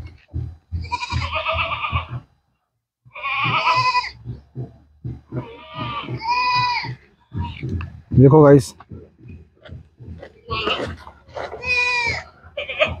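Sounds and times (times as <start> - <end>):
soft low thumps: 0.0 - 13.0
goat bleating: 0.7 - 2.3, 3.1 - 4.4, 5.0 - 7.8, 10.3 - 13.0.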